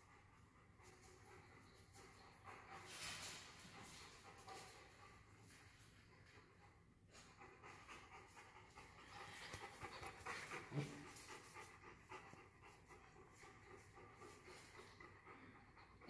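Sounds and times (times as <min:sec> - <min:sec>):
dog panting: 0:00.0 - 0:16.0.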